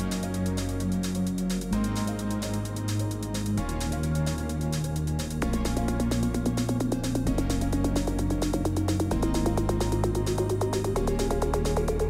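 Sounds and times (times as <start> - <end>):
electronic music with fast beat: 0.0 - 12.0.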